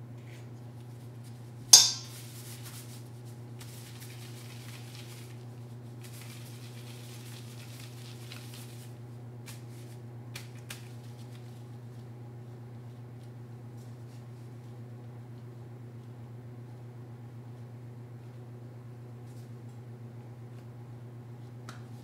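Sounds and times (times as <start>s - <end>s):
steady low hum: 0.0s - 22.0s
utensil clinking against dish: 1.8s - 2.2s
soft scraping and rustling: 2.1s - 10.0s.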